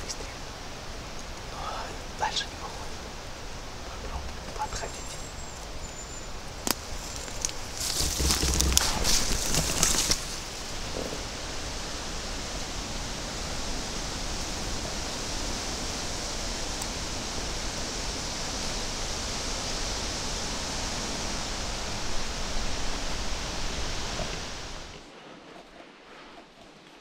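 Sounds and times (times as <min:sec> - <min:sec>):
wind through leafy trees: 0:00.0 - 0:27.0
clothing and brush rustling: 0:06.8 - 0:11.2, 0:21.3 - 0:27.0.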